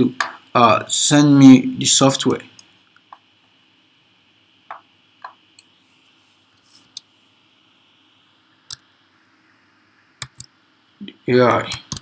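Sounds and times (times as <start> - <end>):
mouse clicks: 10.2 - 10.5.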